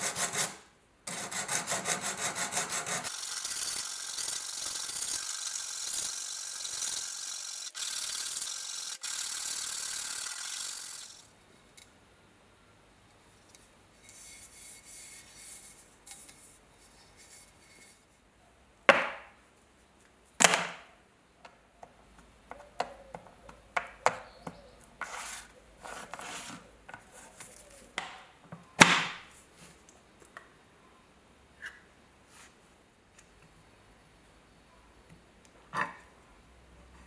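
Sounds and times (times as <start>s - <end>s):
objects rubbing on wood: 25.0s - 28.0s.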